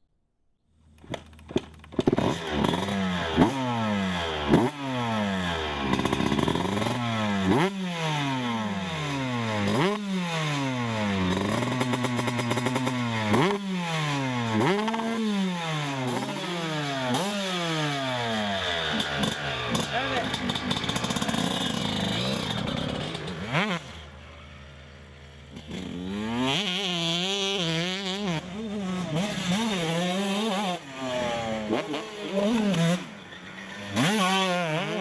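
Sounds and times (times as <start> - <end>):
dirt bike engine revving: 1.9 - 35.0.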